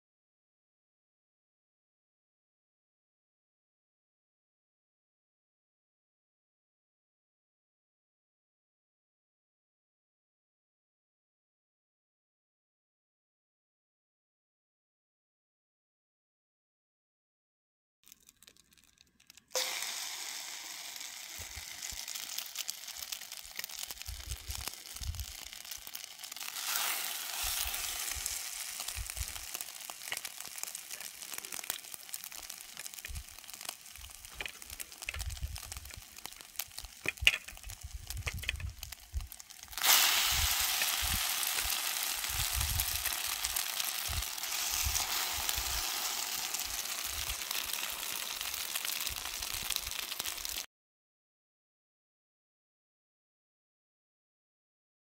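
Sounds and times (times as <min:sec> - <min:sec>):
bread sizzling in skillet: 0:18.1 - 0:50.7.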